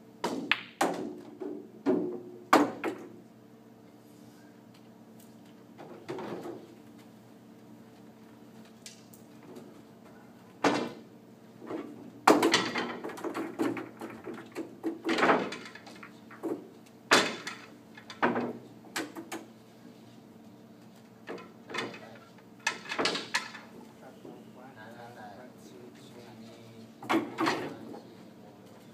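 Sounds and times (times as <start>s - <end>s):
pool balls clacking together: 0.2s - 3.2s, 10.6s - 19.5s, 21.2s - 23.8s, 27.0s - 27.9s.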